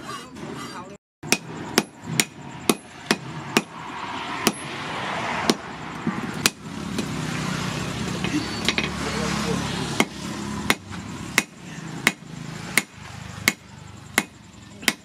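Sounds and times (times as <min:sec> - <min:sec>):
hammer striking hot steel: 0:01.2 - 0:03.8, 0:04.4 - 0:04.7, 0:05.4 - 0:07.1, 0:10.0 - 0:15.0.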